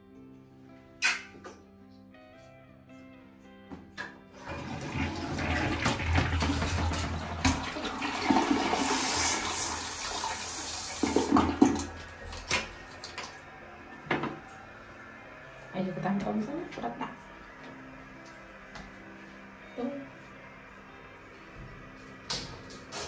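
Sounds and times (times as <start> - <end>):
water spraying into toilet bowl: 4.4 - 13.4.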